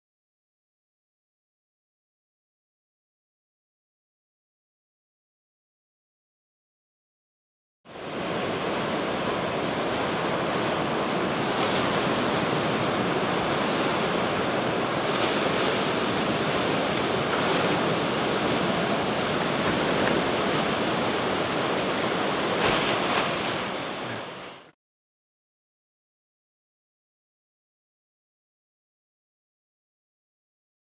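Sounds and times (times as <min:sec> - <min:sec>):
ocean waves breaking: 0:07.9 - 0:24.7.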